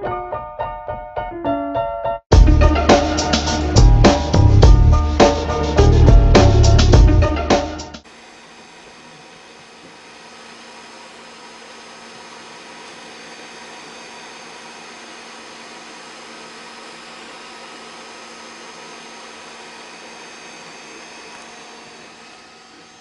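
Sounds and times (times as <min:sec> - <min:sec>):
fans whirring: 0:02.5 - 0:23.0
thin whining tones: 0:08.0 - 0:23.0.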